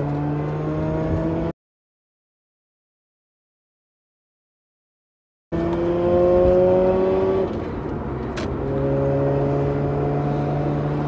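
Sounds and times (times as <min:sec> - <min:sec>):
rotary engine accelerating: 0:00.0 - 0:01.5, 0:05.6 - 0:11.0.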